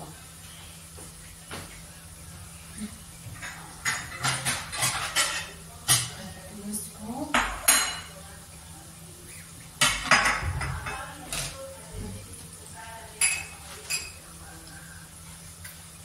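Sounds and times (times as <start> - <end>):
dishes and cutlery clinking: 3.3 - 6.4, 7.3 - 8.3, 9.8 - 11.7, 13.2 - 14.3.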